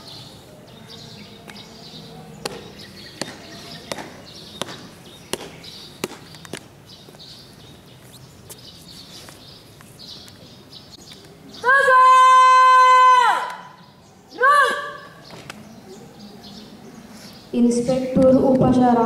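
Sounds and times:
marching footsteps on pavement: 2.3 - 11.4.

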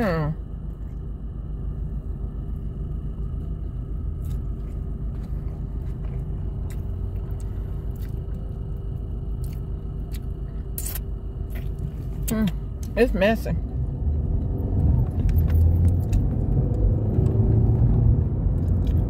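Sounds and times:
car cabin rumble: 0.0 - 19.0
person chewing food: 4.0 - 12.9.

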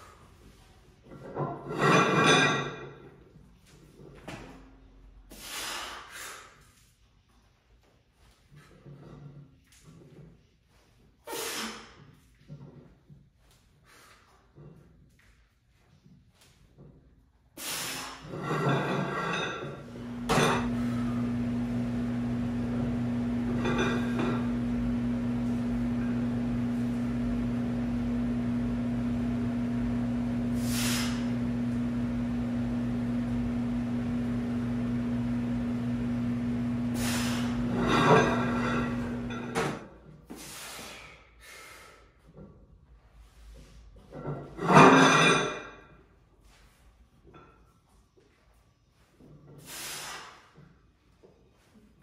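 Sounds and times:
steady low hum: 18.3 - 39.7
man breathing hard: 40.3 - 42.2.

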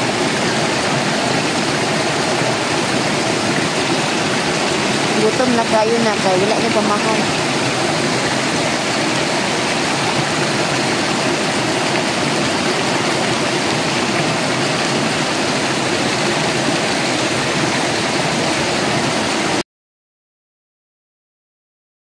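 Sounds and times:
stream rushing among boulders: 0.0 - 19.6.

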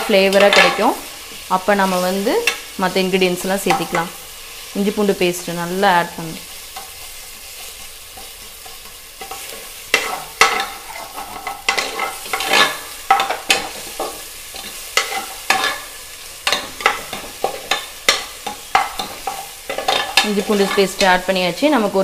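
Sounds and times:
food sizzling in hot oil: 0.0 - 22.0
spoon scraping metal pot: 8.2 - 15.9.

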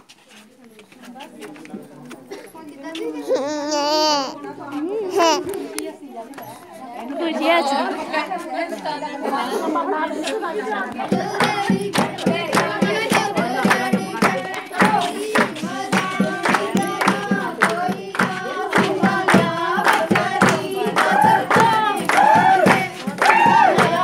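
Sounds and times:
women singing folk song: 7.0 - 24.0
hand claps: 10.9 - 24.0.

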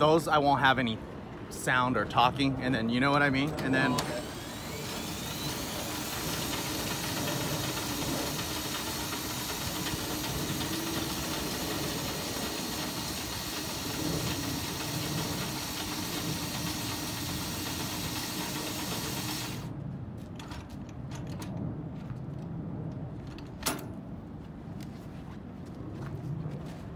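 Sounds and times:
power drive tool running: 3.2 - 19.7.

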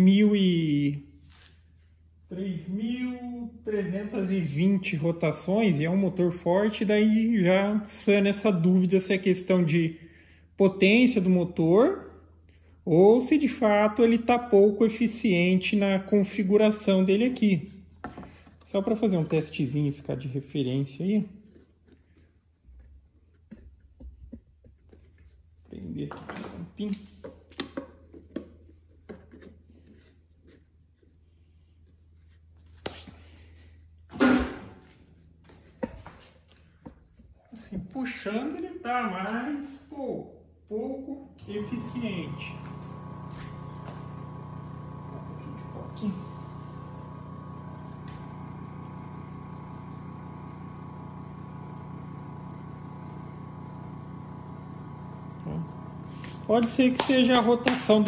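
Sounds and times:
small electric motor humming: 41.4 - 58.0.

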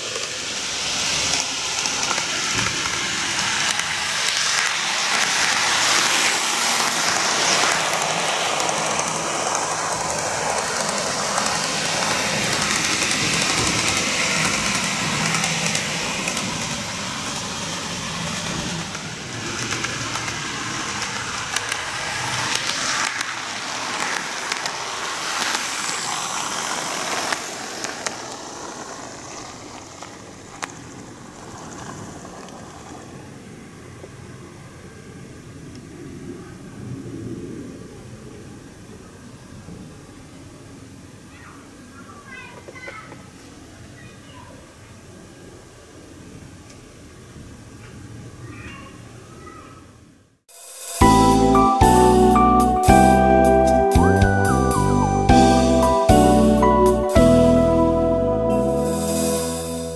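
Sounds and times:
model train rumbling on track: 0.0 - 40.2.

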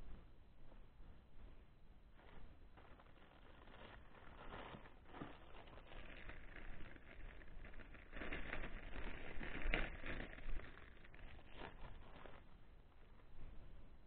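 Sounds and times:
plastic bag rustling: 2.2 - 13.2.

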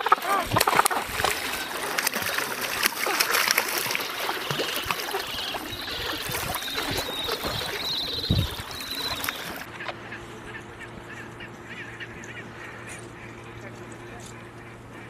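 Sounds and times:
water lapping on pebbles: 0.0 - 9.7
high wavering chirping: 0.0 - 9.8.

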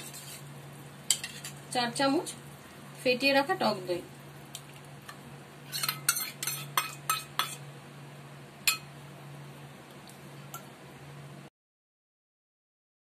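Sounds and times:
spoon clinking against metal pot: 5.7 - 7.6, 8.7 - 8.9.

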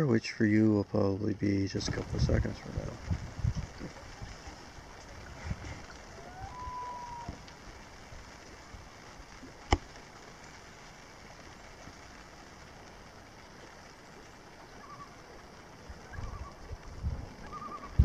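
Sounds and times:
wind and water hiss: 0.0 - 18.0
faint bird calls: 6.0 - 7.4, 14.6 - 16.7, 17.4 - 18.0.

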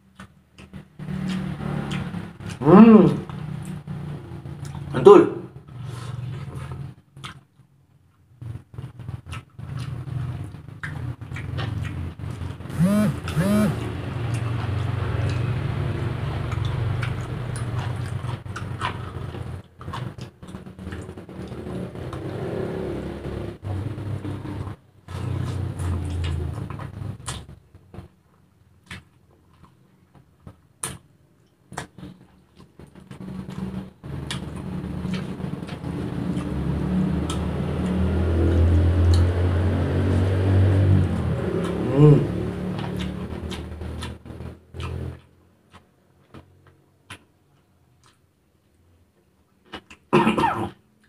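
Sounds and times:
vehicle engine humming: 8.3 - 28.2, 31.9 - 45.6.

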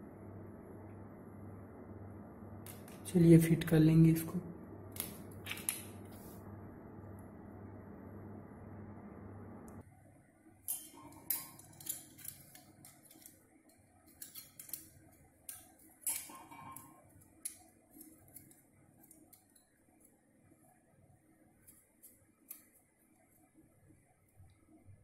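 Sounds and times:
small metal clicks and taps: 10.7 - 19.7.

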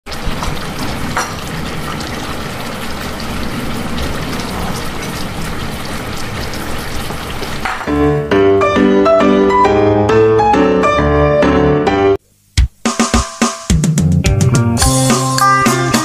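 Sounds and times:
broth boiling in metal pot: 0.1 - 7.9
piano music: 7.6 - 12.2.

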